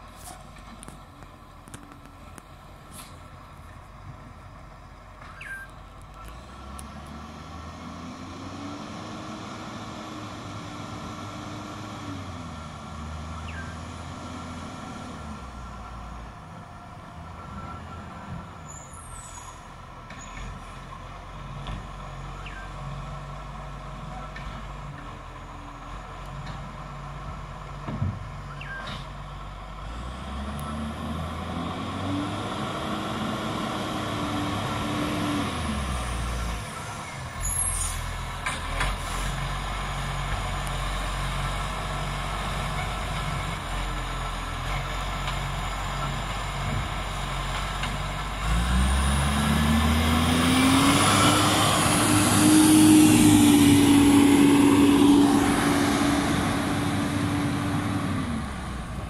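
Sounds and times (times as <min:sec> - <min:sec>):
garbage truck engine revving: 0:06.4 - 0:15.5, 0:29.8 - 0:37.6, 0:38.2 - 0:59.0.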